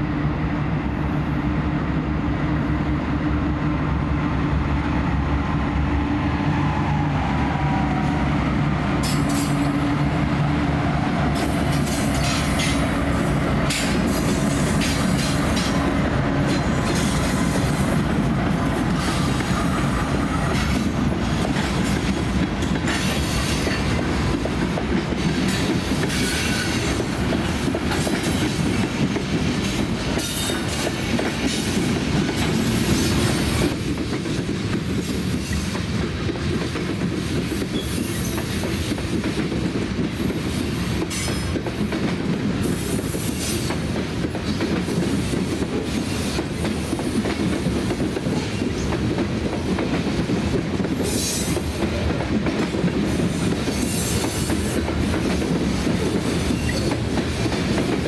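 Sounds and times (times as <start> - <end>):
diesel locomotives passing: 0.0 - 58.0
rumbling train wheels: 0.0 - 58.0
clickety-clack over rail joints: 8.9 - 58.0.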